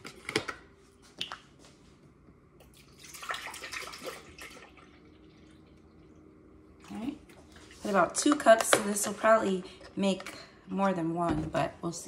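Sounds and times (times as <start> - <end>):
liquid pouring into blender jar: 2.6 - 6.1.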